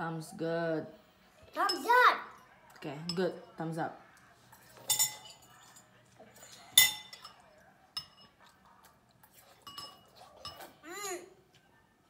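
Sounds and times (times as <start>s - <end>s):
spoons clinking against bowls: 1.6s - 3.6s, 4.5s - 8.5s, 9.2s - 10.8s.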